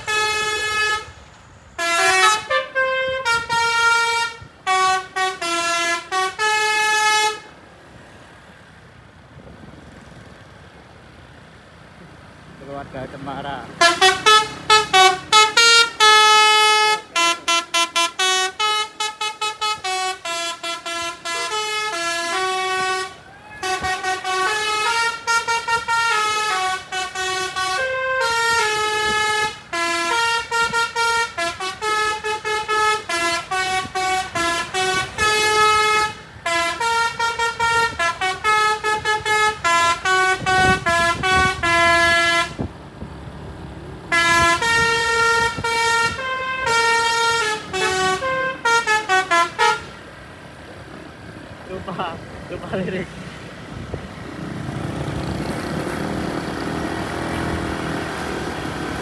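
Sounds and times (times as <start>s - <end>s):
bus horn melody: 0.0s - 7.6s, 13.8s - 42.7s, 44.1s - 50.2s.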